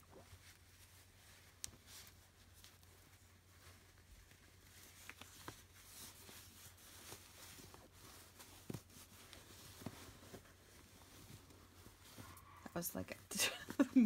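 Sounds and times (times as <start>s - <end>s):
cloth rustling: 0.0s - 14.0s.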